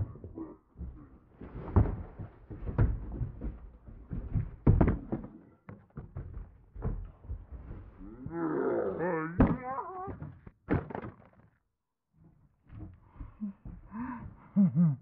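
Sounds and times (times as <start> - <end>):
heavy thumps and knocks: 0.0 - 8.4.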